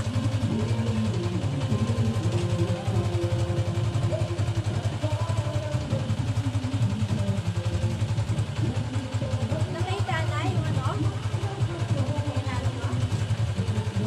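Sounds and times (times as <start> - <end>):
motorcycle engine idling: 0.0 - 14.0.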